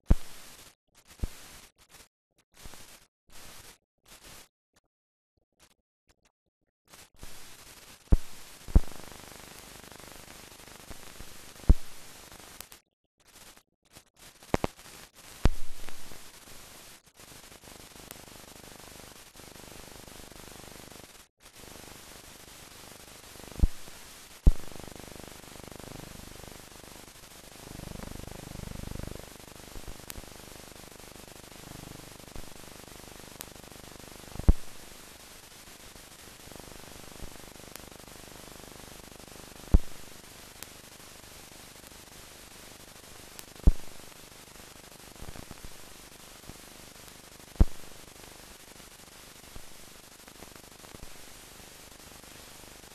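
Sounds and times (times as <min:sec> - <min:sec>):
sharp clicks and pops: 0:00.1 - 0:02.0, 0:06.9 - 0:09.2, 0:10.8 - 0:16.3, 0:23.6 - 0:24.7, 0:34.4 - 0:34.8, 0:39.7 - 0:40.1, 0:43.4 - 0:44.0, 0:47.6 - 0:47.9
film surface hiss and static: 0:00.1 - 0:04.5, 0:06.9 - 0:52.9.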